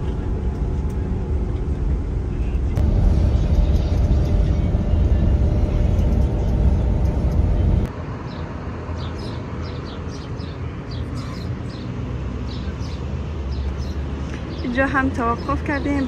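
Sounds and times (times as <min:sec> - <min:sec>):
coach rumbling inside cabin: 0:00.0 - 0:07.9
open-air ambience: 0:00.0 - 0:16.0.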